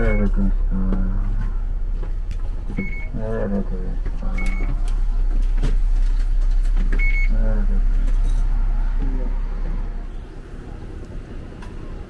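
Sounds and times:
short electronic beeps: 0.0 - 0.4, 2.8 - 3.2, 4.3 - 4.8, 7.0 - 7.4
bus engine idling: 0.0 - 12.0
voices: 0.0 - 12.0.

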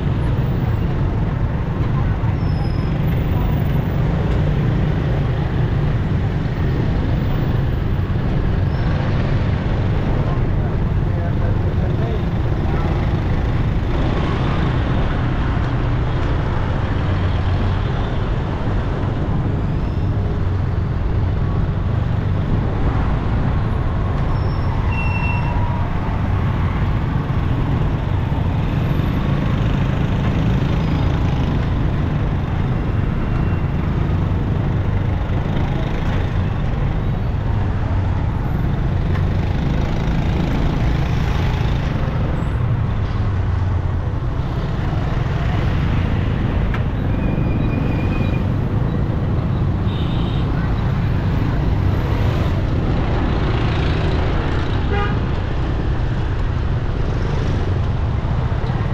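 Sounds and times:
road traffic roar: 0.0 - 58.9.

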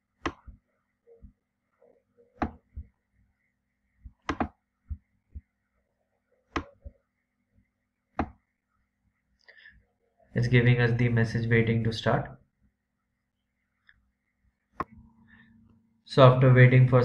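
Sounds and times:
mouse buttons clicking: 2.4 - 2.9, 4.2 - 4.6, 6.5 - 6.9.

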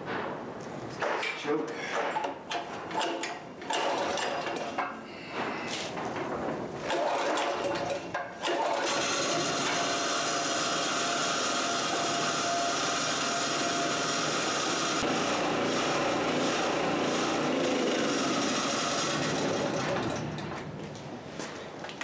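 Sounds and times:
generator engine running: 9.1 - 20.3.

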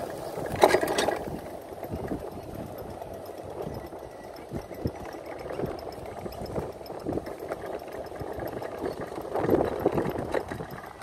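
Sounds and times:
go-kart engine rumbling: 0.0 - 11.0.

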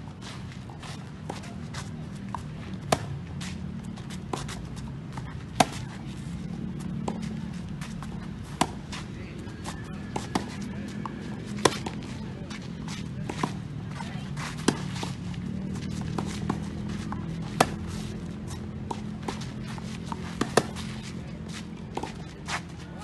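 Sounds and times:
tennis ball bounces: 1.3 - 22.6
tennis racket hitting ball: 2.3 - 3.2, 5.2 - 5.9, 8.4 - 9.0, 9.6 - 12.2, 14.5 - 15.2, 15.9 - 21.0
distant tennis hits: 8.0 - 13.7, 15.8 - 21.1.

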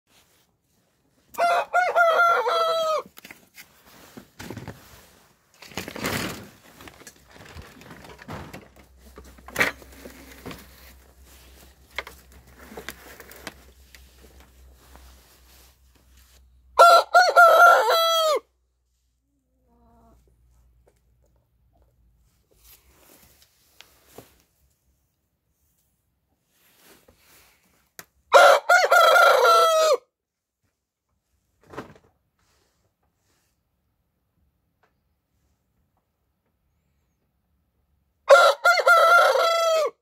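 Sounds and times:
rooster crowing: 1.3 - 3.1, 16.8 - 18.5, 28.3 - 30.0, 38.3 - 40.0
knocks and rustles: 4.1 - 14.6.

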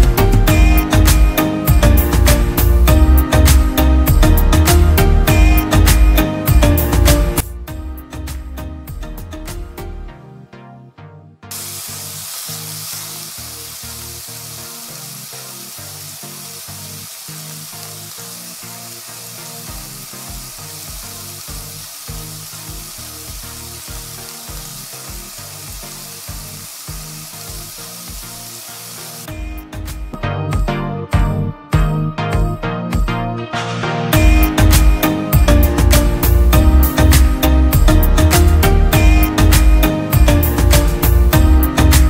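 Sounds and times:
background music: 0.0 - 42.0
food sizzling in a frying pan: 11.5 - 29.3.

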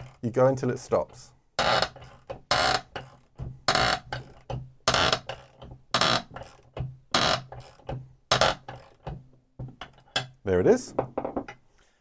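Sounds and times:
ratchet clicking: 1.6 - 8.0
ratchet wrench rasping: 1.6 - 9.1.

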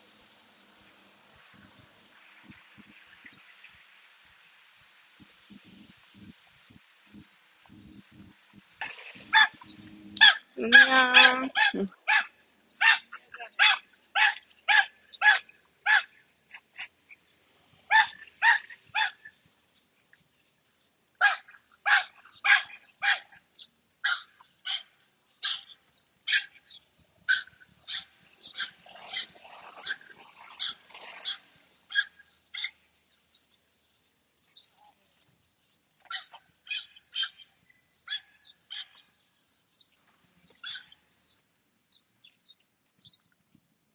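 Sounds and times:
dog barking: 9.3 - 9.6, 10.2 - 16.1, 17.9 - 19.2, 21.2 - 23.4, 24.0 - 26.6, 27.3 - 30.0, 30.6 - 32.8, 36.1 - 37.4, 38.1 - 39.0.

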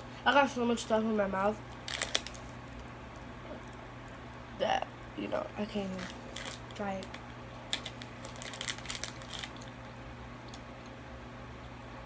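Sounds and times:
plastic wrapper crinkling: 1.7 - 3.8, 5.8 - 10.7.

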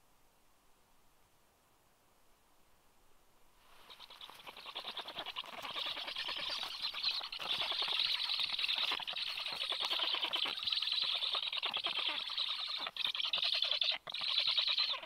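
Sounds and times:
wing flapping: 3.7 - 12.8
nestlings begging chatter: 3.8 - 15.0.

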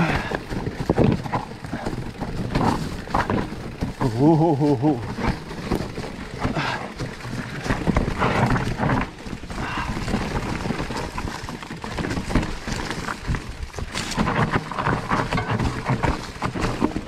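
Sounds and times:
bike clattering: 0.0 - 17.0
tyres crunching over stones: 0.0 - 17.0.

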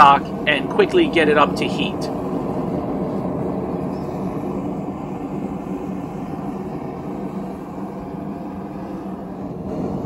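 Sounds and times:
propane forge burner rushing: 0.0 - 10.0.

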